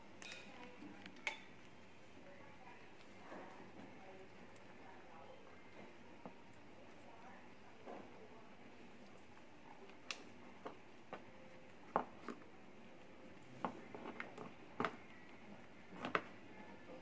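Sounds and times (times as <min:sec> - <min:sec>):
guinea pigs crunching lettuce: 0:00.2 - 0:17.0.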